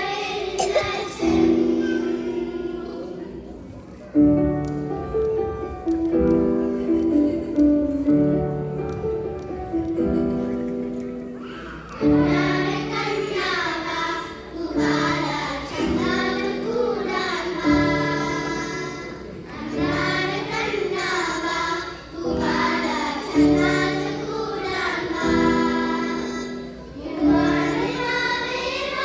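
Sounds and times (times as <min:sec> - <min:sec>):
children's choir singing: 0:00.0 - 0:29.0.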